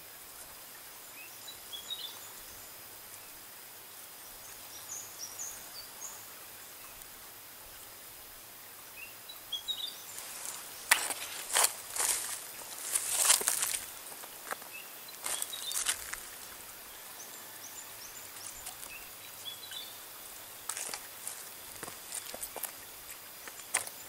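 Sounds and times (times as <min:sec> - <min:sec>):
outdoor hiss: 0:00.0 - 0:24.0
small bird chirping: 0:09.5 - 0:24.0.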